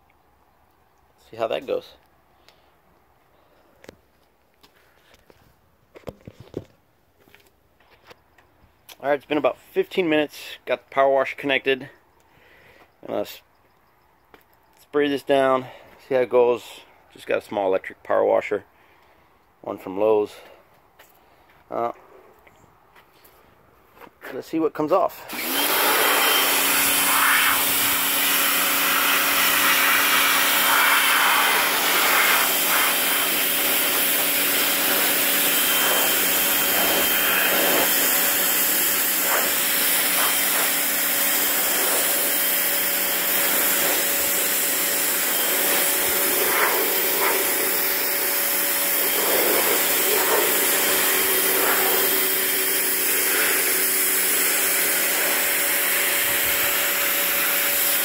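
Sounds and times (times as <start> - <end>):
pressure washer motor hum: 25.3 - 58.0
water jet hissing: 25.7 - 58.0.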